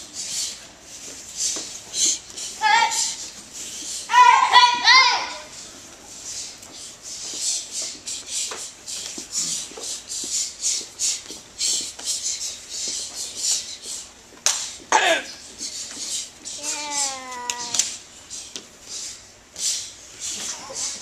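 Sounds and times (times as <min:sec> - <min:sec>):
person shouting: 0:02.6 - 0:03.2, 0:04.1 - 0:05.5.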